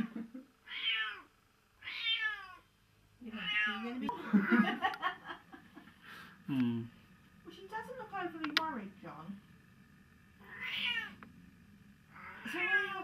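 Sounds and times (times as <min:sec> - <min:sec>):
cat meowing: 0:00.7 - 0:02.6, 0:03.4 - 0:03.8, 0:10.4 - 0:11.2, 0:12.2 - 0:13.0
sharp clicks: 0:08.4 - 0:08.8.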